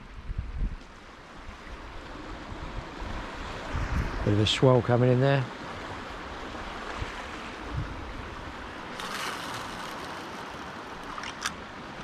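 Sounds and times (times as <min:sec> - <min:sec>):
sea swell washing against rocks: 0:02.6 - 0:12.0.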